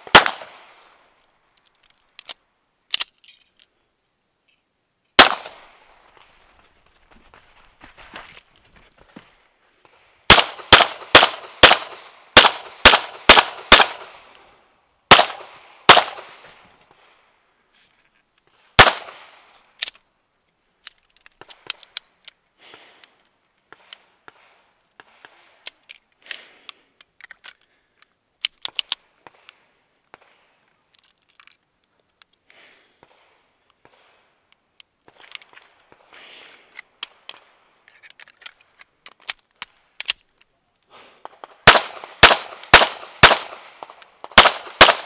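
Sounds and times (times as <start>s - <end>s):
pistol shots: 0.0s - 0.7s, 5.2s - 5.7s, 10.3s - 14.2s, 15.1s - 16.4s, 18.8s - 19.4s, 41.6s - 45.0s.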